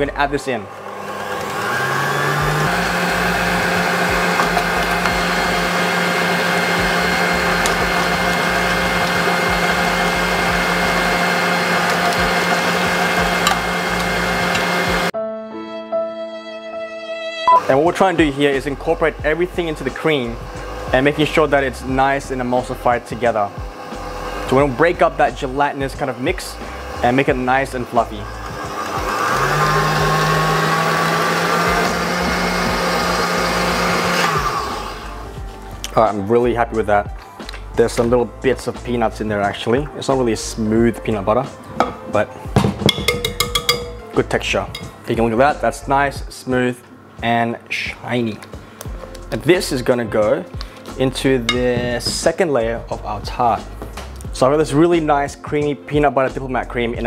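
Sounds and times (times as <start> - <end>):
stand mixer motor whirring: 0.7 - 15.1, 19.6 - 35.3.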